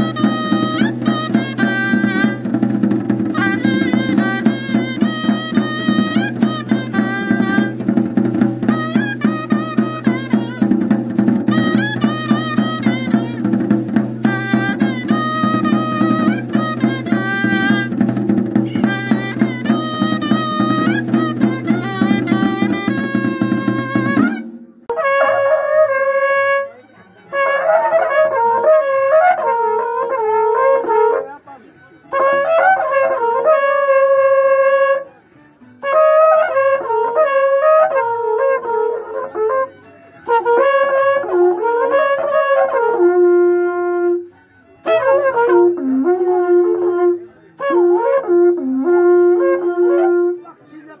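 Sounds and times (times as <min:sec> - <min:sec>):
large drum: 0:00.0 - 0:24.9
cattle-horn trumpets blowing: 0:00.0 - 0:31.4, 0:32.0 - 0:50.6
small flute: 0:00.0 - 0:51.0.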